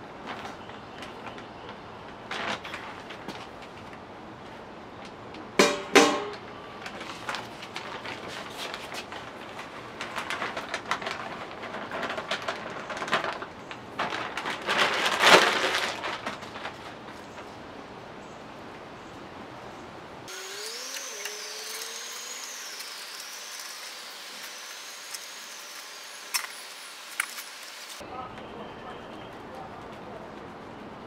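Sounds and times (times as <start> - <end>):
plastic bag crinkling: 6.8 - 17.6.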